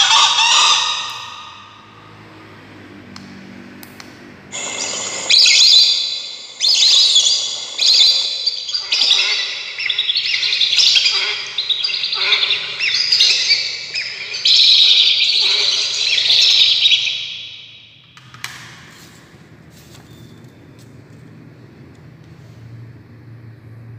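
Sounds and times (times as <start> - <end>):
recorded bird calls through speaker: 0.0 - 2.1, 4.5 - 18.0.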